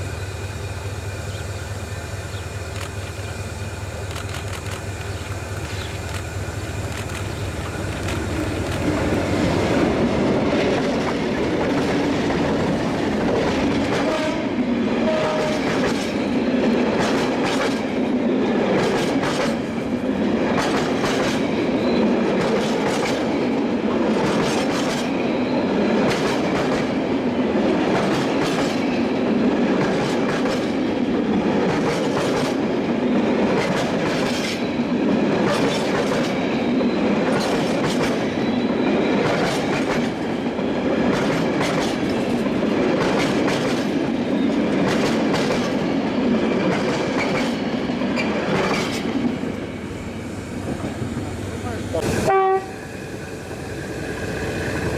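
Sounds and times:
freight train rumble and rattle: 0.0s - 54.9s
wheels clacking over rail joints: 41.0s - 49.5s.

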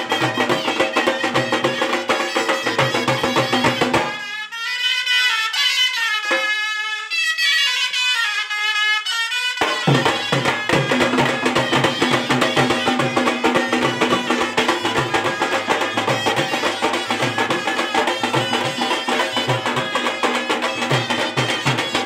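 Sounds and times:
barrel drums fast beat: 0.0s - 4.2s, 9.6s - 22.0s
wind instrument melody: 0.0s - 22.0s.

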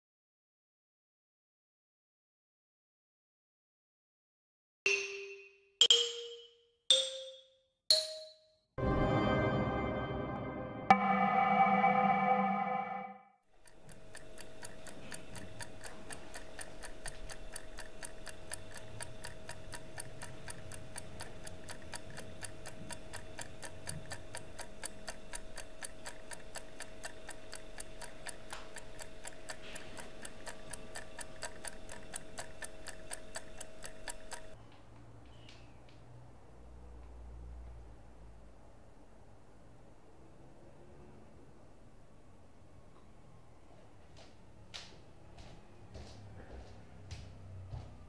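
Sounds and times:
clock ticking: 4.9s - 8.4s, 13.6s - 34.6s.

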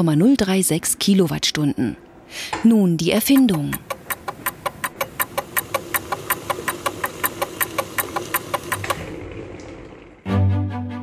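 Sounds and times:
rapid even ticking: 3.2s - 9.1s.

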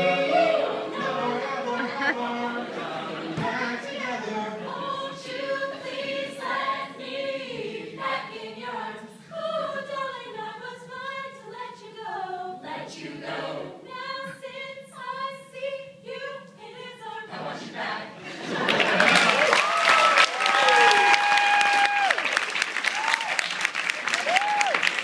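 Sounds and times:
mixed a cappella group singing: 0.0s - 18.7s.

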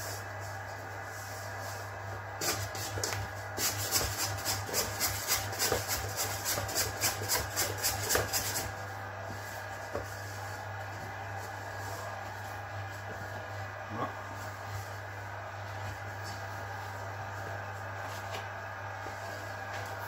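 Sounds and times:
dough hook scraping: 2.4s - 8.8s.

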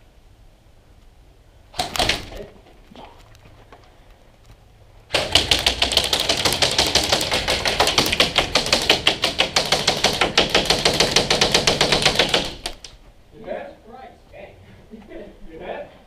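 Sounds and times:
airsoft gunfire rattle: 1.7s - 2.5s, 5.1s - 13.0s.

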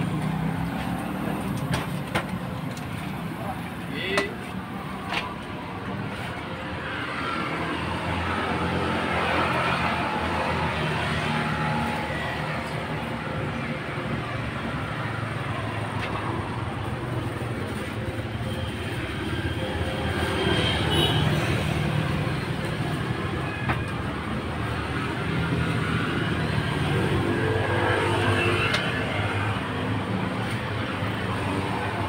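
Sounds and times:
motorbikes and cars passing: 0.0s - 32.0s.

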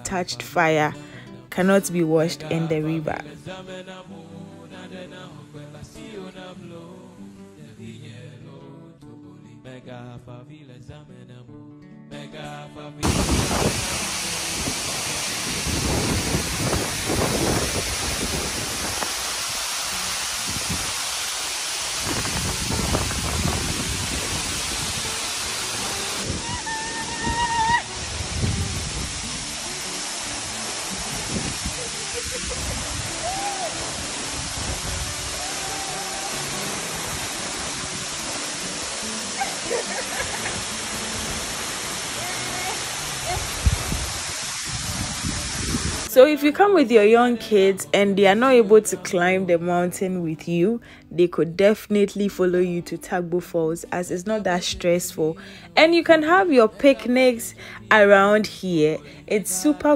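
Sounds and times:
low rumble of waterfall: 13.0s - 46.1s
waterfall rushing: 13.0s - 46.1s.

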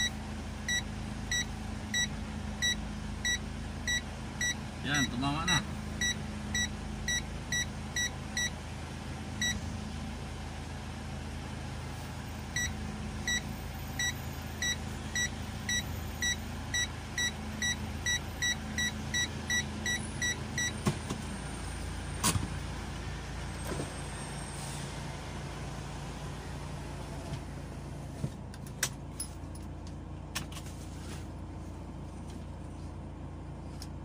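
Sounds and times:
car engine hum: 0.0s - 34.0s
car chime beeping: 0.7s - 5.2s, 6.0s - 8.6s, 12.6s - 20.8s.

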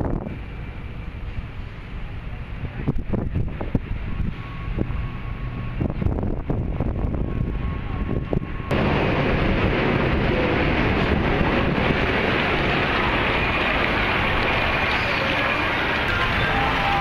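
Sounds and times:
wind buffeting microphone: 0.0s - 17.0s
fountain water pouring: 8.7s - 17.0s.

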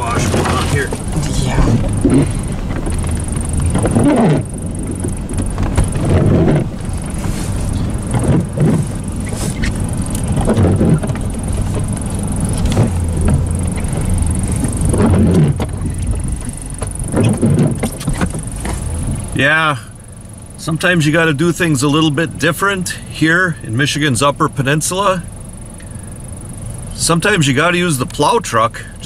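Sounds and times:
snow scraping against truck: 0.0s - 19.8s
truck engine hum: 0.0s - 29.0s.

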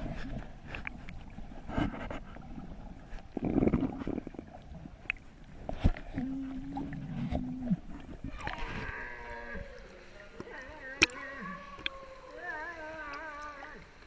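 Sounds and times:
person vocalising wordlessly: 11.0s - 13.9s.

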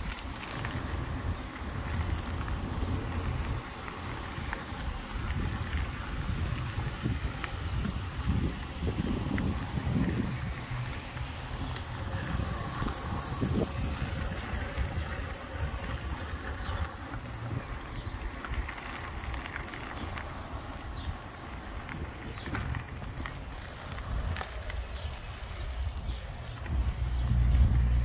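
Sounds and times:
bicycle tyres rolling on pavement: 0.0s - 28.0s
bike ticks and rattles: 0.0s - 28.0s
wind buffeting microphone: 0.0s - 28.0s.

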